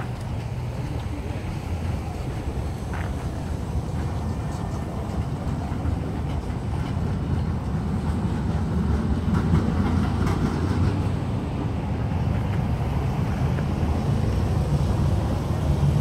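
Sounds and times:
trams rumbling on track: 0:00.0 - 0:16.0.

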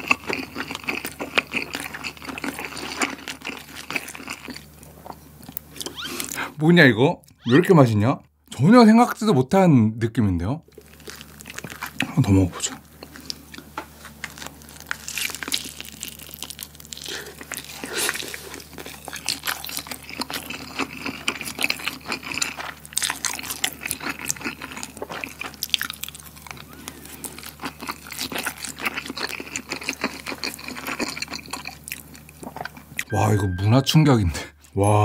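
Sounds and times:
chewing with mouth clicks: 0:00.0 - 0:06.4, 0:10.7 - 0:33.1.

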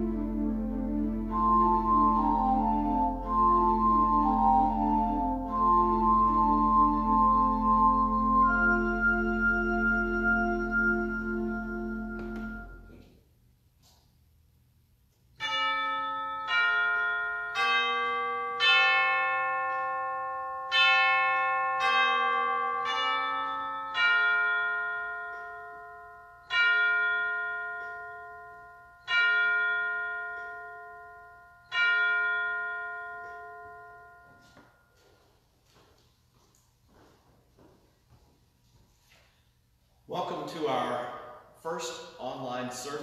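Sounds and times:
church chimes melody: 0:00.0 - 0:13.1, 0:15.4 - 0:37.0.

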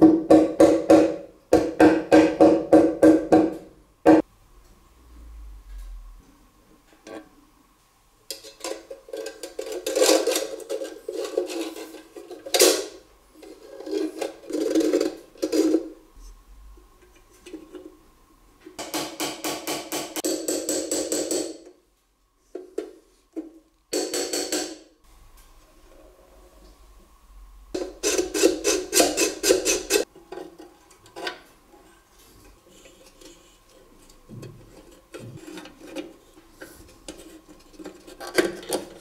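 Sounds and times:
sheet metal parts clicking and knocking: 0:18.8 - 0:21.8, 0:22.6 - 0:24.8.

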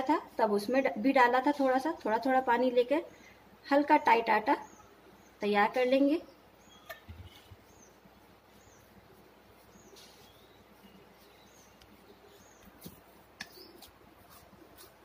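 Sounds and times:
faint bird chirps: 0:04.0 - 0:13.9.

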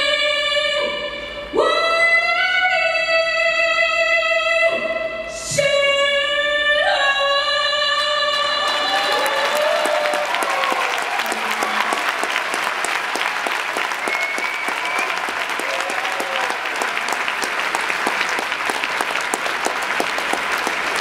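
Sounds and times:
audience applauding: 0:08.3 - 0:21.0.

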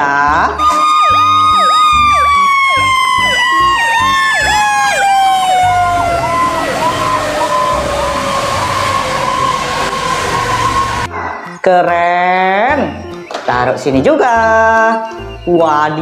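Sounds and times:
fast yelping siren: 0:00.5 - 0:11.1
long siren tone sliding down: 0:00.6 - 0:11.1
tyres hissing on wet road: 0:06.3 - 0:11.1.

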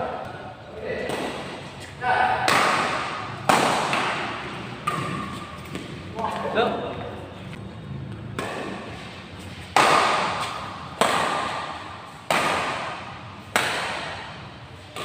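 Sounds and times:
badminton racket hitting shuttlecock: 0:02.4 - 0:06.0, 0:08.3 - 0:15.0.

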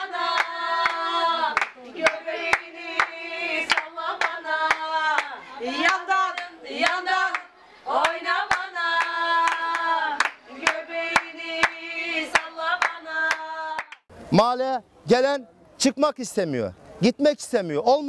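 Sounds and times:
woman singing: 0:00.0 - 0:14.0
hand claps: 0:00.3 - 0:14.1.

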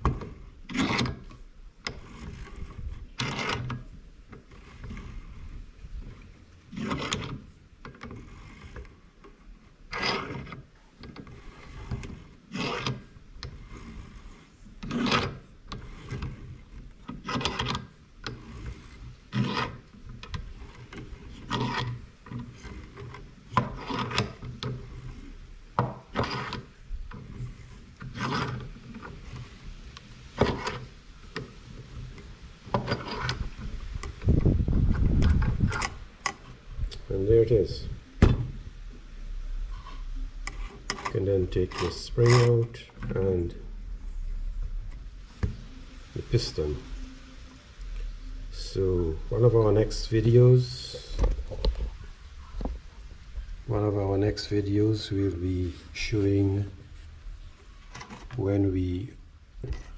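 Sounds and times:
vise screw metallic scraping: 0:00.0 - 0:38.0, 0:39.6 - 0:43.6, 0:57.8 - 0:59.9.

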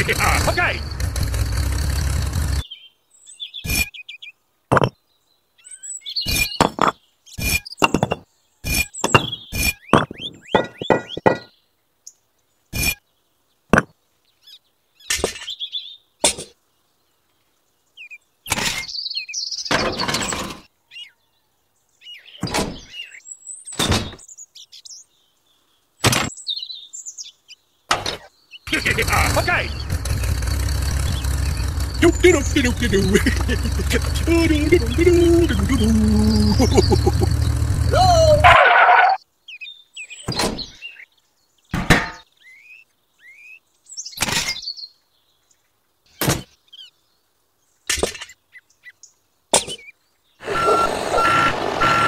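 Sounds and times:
small bricks clicking and knocking: 0:04.7 - 0:05.0, 0:06.6 - 0:07.0, 0:07.8 - 0:08.3.

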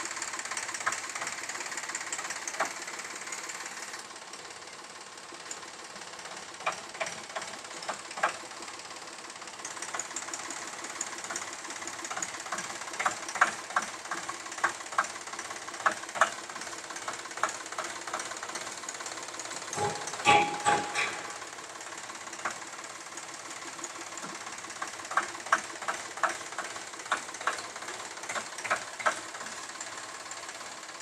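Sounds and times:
diesel tractor engine running: 0:00.0 - 0:31.0
metallic clanks and knocks: 0:19.7 - 0:21.5.

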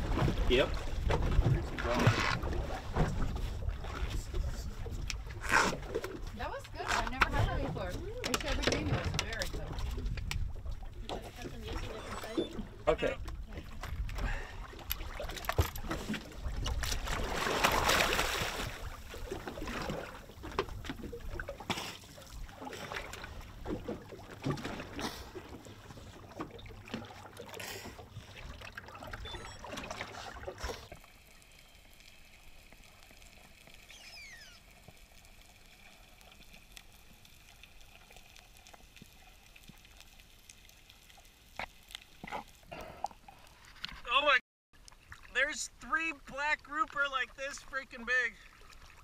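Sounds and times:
water splashing and sloshing: 0:00.0 - 0:49.0
loud splash into water: 0:17.0 - 0:19.0.

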